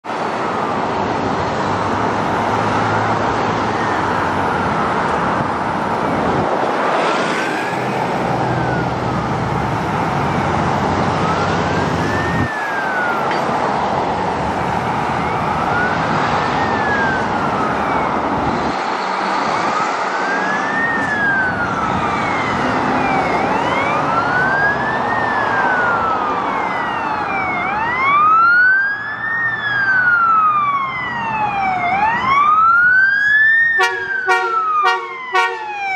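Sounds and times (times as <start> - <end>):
passing road traffic: 0.0 - 35.9
ambulance siren wailing: 0.2 - 35.9.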